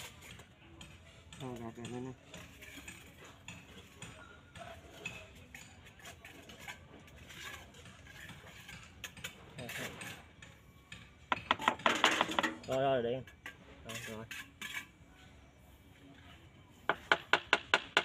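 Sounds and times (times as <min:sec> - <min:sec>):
trowel scraping wet mortar: 0:02.4 - 0:04.0, 0:04.8 - 0:10.4, 0:13.3 - 0:15.0.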